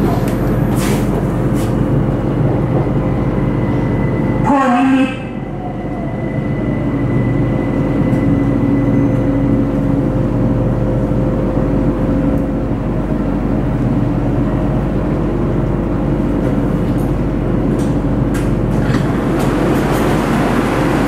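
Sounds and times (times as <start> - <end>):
train motor and wheel hum: 0.0 - 21.0
rough rail noise: 17.8 - 21.0.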